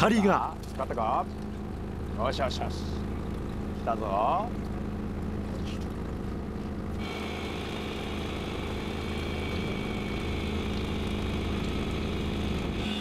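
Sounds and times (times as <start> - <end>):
boat engine humming: 0.0 - 13.0
electric reel motor whine: 7.0 - 13.0.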